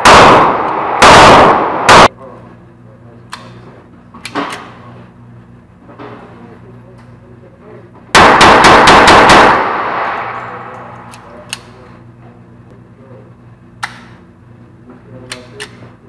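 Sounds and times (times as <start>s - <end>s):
pistol shots echoing: 0.0s - 2.1s, 8.2s - 10.8s.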